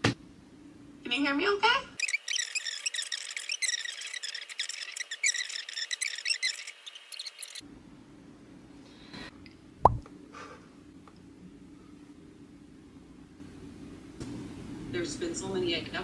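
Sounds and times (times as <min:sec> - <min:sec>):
high squeaky voice chatter: 0:02.0 - 0:07.6.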